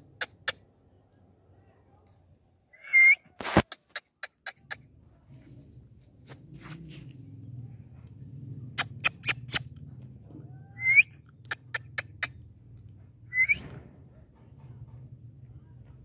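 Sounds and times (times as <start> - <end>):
parakeet squeaks: 8.8 - 9.6.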